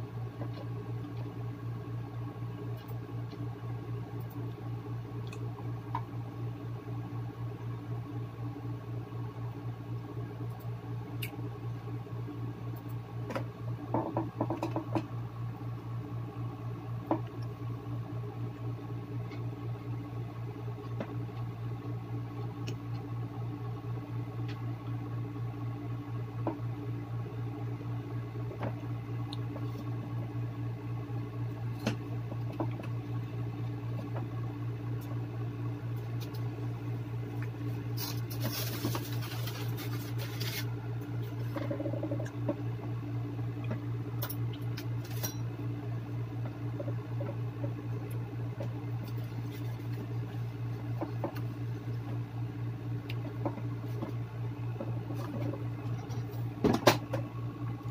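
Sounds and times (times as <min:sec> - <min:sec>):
steady low hum: 0:00.0 - 0:57.9.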